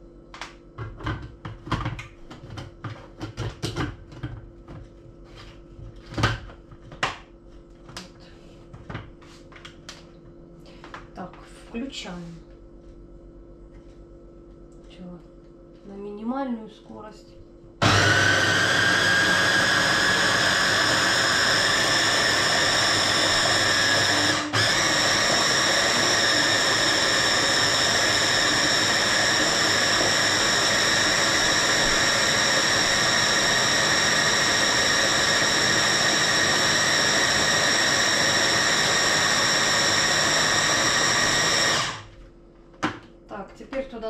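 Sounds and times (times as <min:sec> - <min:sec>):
hand blender motor whine: 0:17.8 - 0:42.1.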